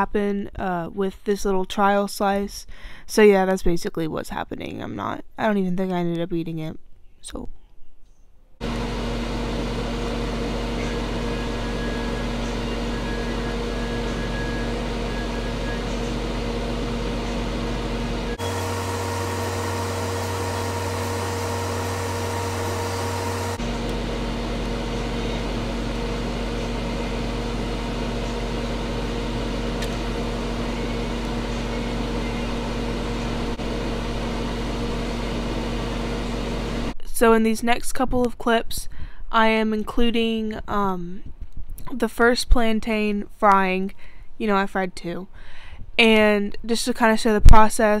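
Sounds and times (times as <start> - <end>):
steady mechanical hum: 8.6 - 48.0.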